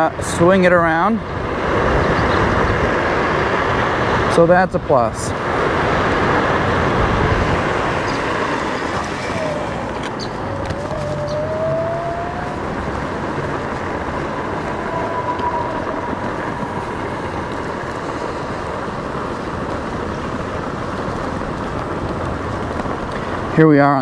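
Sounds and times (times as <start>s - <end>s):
scooter tyres rumbling on bricks: 6.1s - 15.2s.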